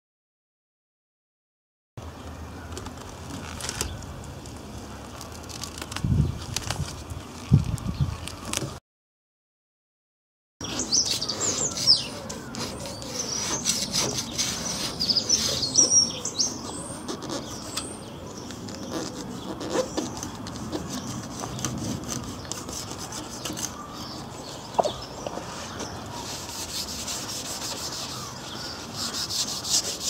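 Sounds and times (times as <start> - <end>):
metal scraper scratching sealant: 10.6 - 16.0, 26.2 - 30.0
birds chirping: 10.6 - 30.0.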